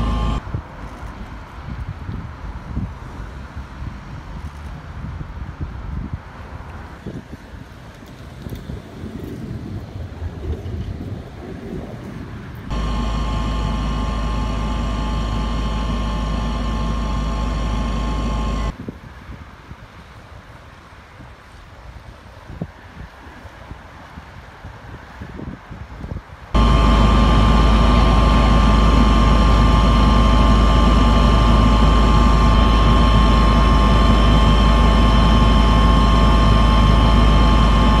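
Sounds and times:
aircraft cabin hum: 0.0 - 0.4, 12.7 - 18.7, 26.6 - 38.0
high engine whines: 0.0 - 0.4, 12.7 - 18.8, 26.6 - 38.0
wind rumbling on microphone: 0.0 - 38.0.

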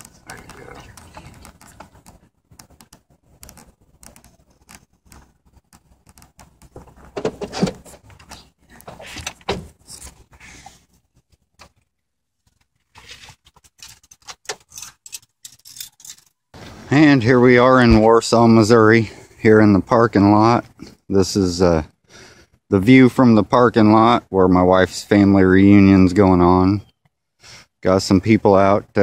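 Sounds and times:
handheld camera clicks and rustles: 0.0 - 16.4.

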